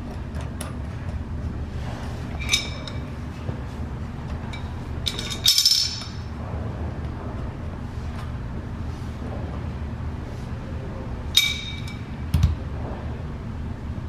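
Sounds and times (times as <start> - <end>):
steady low hum: 0.0 - 14.0
metal fitting clinking: 4.5 - 6.2.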